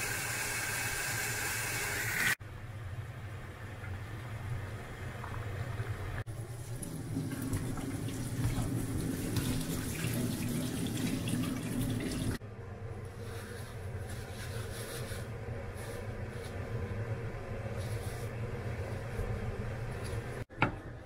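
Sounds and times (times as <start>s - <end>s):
water boiling and bubbling: 3.4s - 12.4s.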